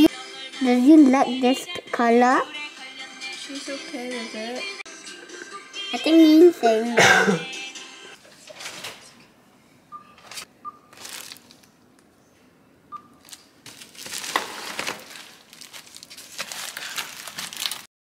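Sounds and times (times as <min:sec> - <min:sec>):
bags crinkling and rustling: 0:10.3 - 0:11.7, 0:13.2 - 0:17.9.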